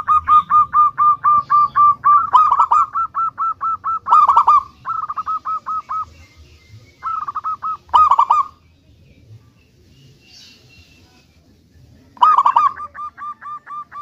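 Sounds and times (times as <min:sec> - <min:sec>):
dove cooing: 0:00.0 - 0:08.6, 0:12.1 - 0:14.0.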